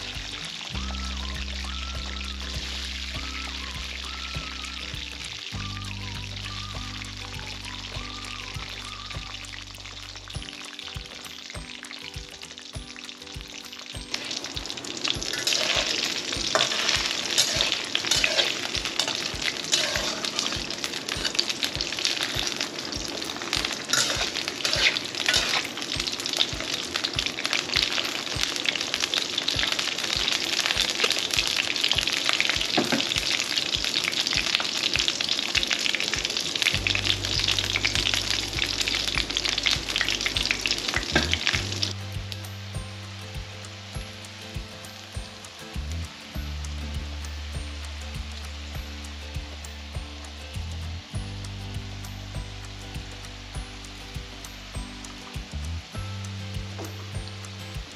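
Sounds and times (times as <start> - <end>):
background music with steady beat: 0.0 - 57.9
food sizzling in oil: 0.0 - 57.9
stirring in a pan: 14.1 - 41.9.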